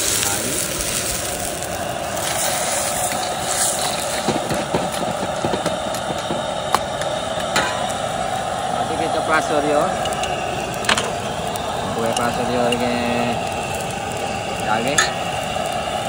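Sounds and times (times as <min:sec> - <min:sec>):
ladle scraping a wok: 0:00.0 - 0:05.2
gas burner hiss and simmering: 0:00.0 - 0:16.0.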